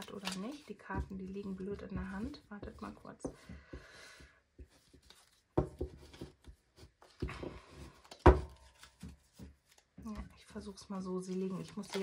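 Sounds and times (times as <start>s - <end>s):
cards tapping and rubbing: 0.0s - 10.0s, 11.3s - 12.0s.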